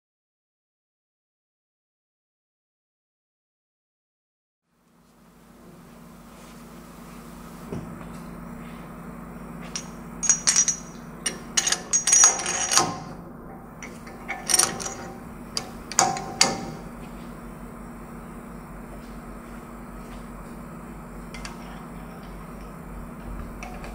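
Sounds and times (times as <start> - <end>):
steel tool parts clanking: 9.6 - 13.1, 13.8 - 16.8.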